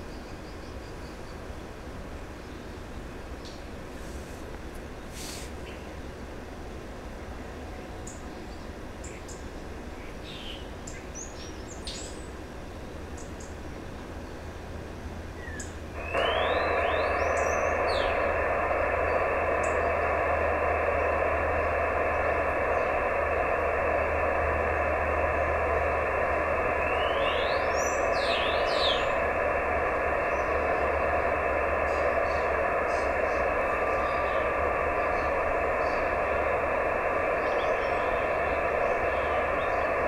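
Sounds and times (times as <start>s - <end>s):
radio receiver hiss: 3.9s - 5.8s, 15.9s - 40.0s.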